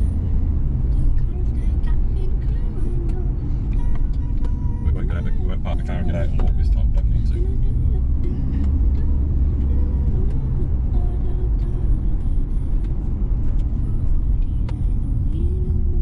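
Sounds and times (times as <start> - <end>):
car interior road rumble: 0.0 - 16.0.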